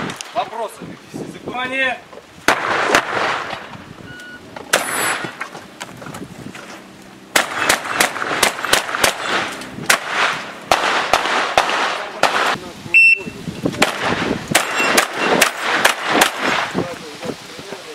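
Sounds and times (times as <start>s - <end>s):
shotgun shots with echo: 2.5s - 3.7s, 4.7s - 5.4s, 7.3s - 12.6s, 13.8s - 16.8s.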